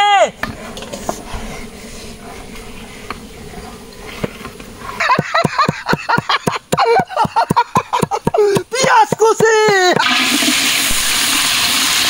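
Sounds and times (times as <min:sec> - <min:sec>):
knife chopping onions on board: 0:05.2 - 0:10.1.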